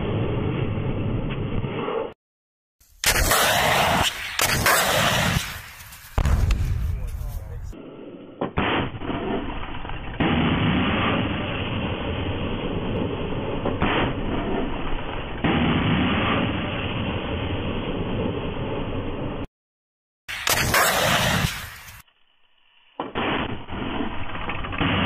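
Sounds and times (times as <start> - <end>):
missile launch bangs and rushing blast: 6.2 - 7.8.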